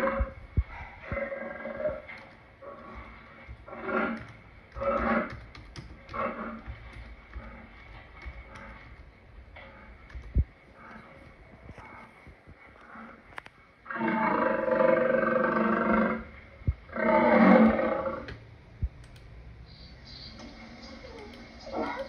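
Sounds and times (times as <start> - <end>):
lion roaring: 0.0 - 5.3, 6.1 - 8.9, 12.8 - 18.3.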